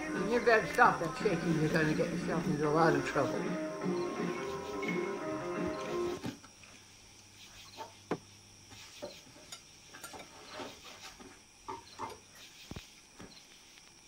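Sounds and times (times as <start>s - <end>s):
cutlery clinking on a plate: 9.5s - 10.4s.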